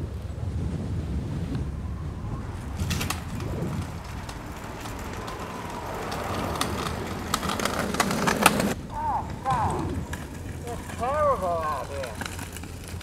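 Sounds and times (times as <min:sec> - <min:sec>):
scooter wheels rolling on asphalt: 0:00.0 - 0:13.0
sharp clicks and rattles: 0:10.0 - 0:13.0.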